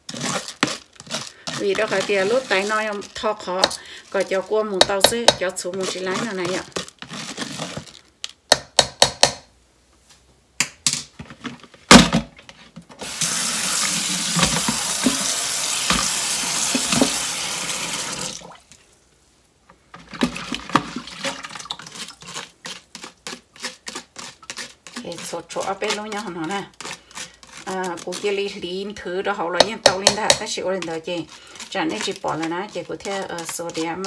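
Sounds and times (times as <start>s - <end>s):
paddle scraping plastic colander: 0.0s - 8.1s, 13.0s - 17.5s, 19.9s - 34.0s
tap running into a colander: 13.0s - 18.4s.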